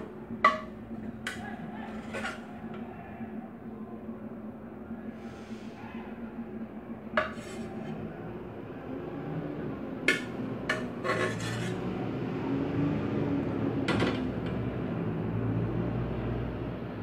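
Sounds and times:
metal ladle scraping pots: 0:00.0 - 0:02.8, 0:07.2 - 0:08.0, 0:10.1 - 0:12.0
metal pot knocking on stove: 0:00.4 - 0:00.8.

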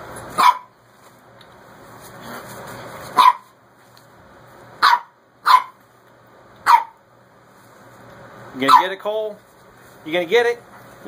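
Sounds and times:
puppy barking: 0:00.4 - 0:00.8, 0:03.1 - 0:03.6, 0:04.8 - 0:05.8, 0:06.6 - 0:07.0, 0:08.6 - 0:09.0.

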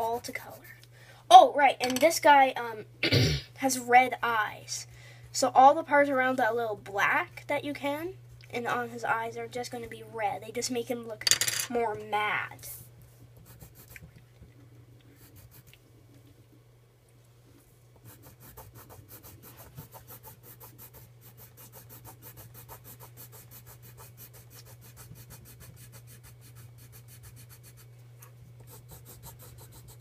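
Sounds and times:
pencil crayon shading on paper: 0:15.2 - 0:15.7, 0:18.0 - 0:27.9, 0:28.7 - 0:30.0.

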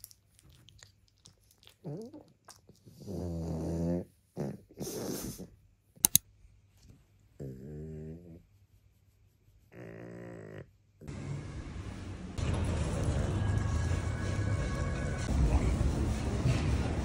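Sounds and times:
dog snoring and grunting: 0:02.9 - 0:05.5, 0:07.4 - 0:08.4, 0:09.7 - 0:10.7
sharp clicks: 0:06.0 - 0:06.2.

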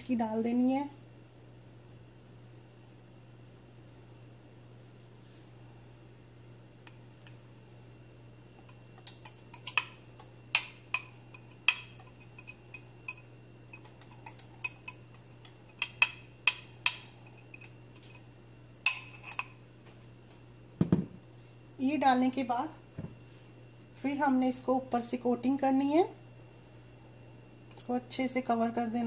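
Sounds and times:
faint steady hum: 0:00.0 - 0:29.0
utensil clinking against a dish: 0:08.6 - 0:19.6.

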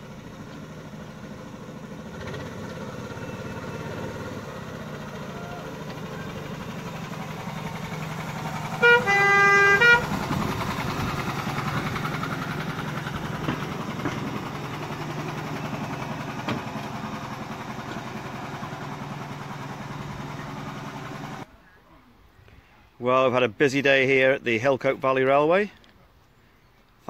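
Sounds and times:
locomotive engine hum: 0:00.0 - 0:22.9
locomotive horn: 0:08.7 - 0:10.4.

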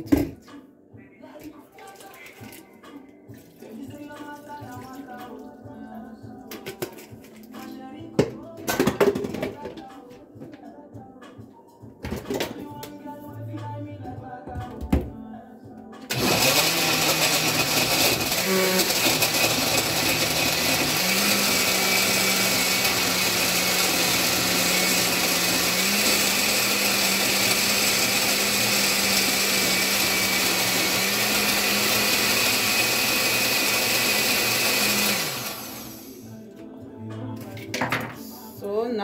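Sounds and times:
blender running: 0:16.1 - 0:36.3.

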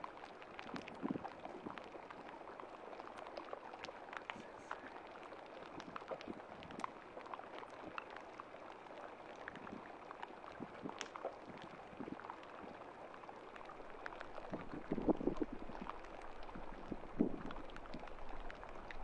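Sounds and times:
faint water wash: 0:00.0 - 0:19.0
small clicks and pops: 0:00.0 - 0:19.0.

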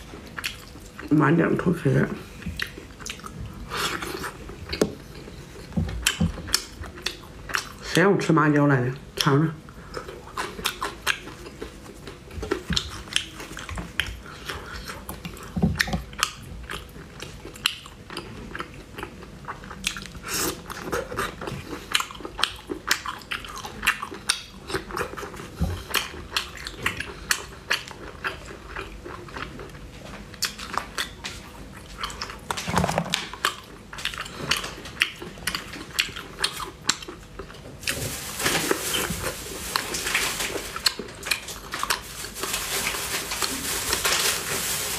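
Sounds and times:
wet chewing mouth sounds: 0:00.0 - 0:01.3, 0:02.0 - 0:08.1, 0:09.1 - 0:37.7.

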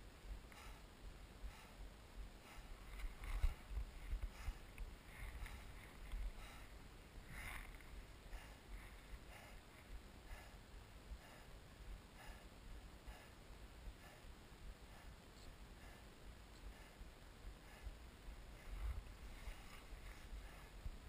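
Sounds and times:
wind rumble on microphone: 0:02.2 - 0:06.4.

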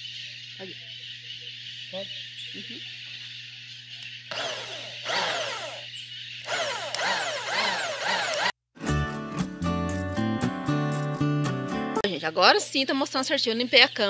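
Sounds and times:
electric drill cutting wood: 0:04.3 - 0:08.6.

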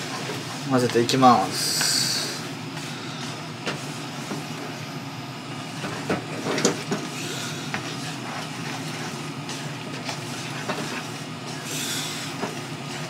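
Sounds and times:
pan hissing: 0:00.0 - 0:04.0, 0:07.1 - 0:13.0
utensils scraping a frying pan: 0:05.8 - 0:13.0.

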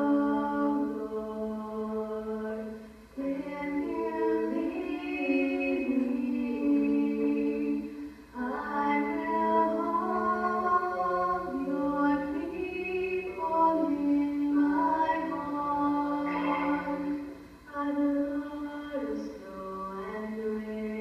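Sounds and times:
girls singing: 0:00.0 - 0:21.0
breath: 0:07.9 - 0:08.4.

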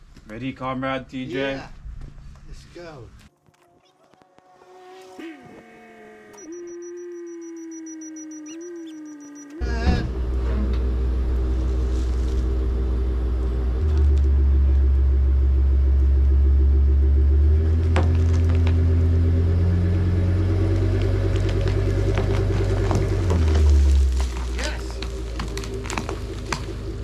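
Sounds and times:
truck engine running under load: 0:09.3 - 0:27.0.

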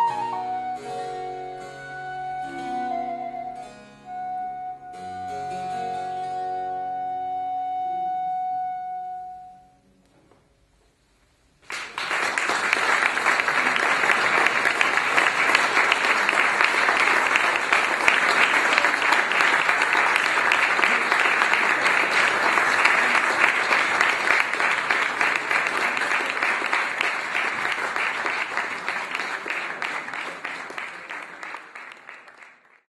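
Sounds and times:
flute and harpsichord music: 0:00.0 - 0:09.8
audience applause: 0:11.6 - 0:32.9.

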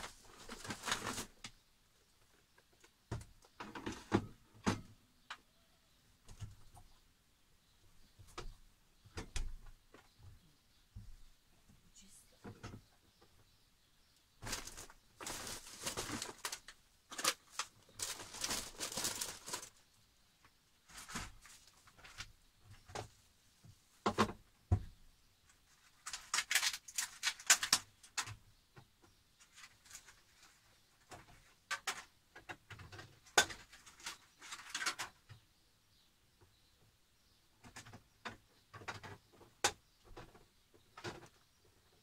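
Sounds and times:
plastic bags rustling: 0:00.0 - 0:01.5, 0:14.4 - 0:19.9.

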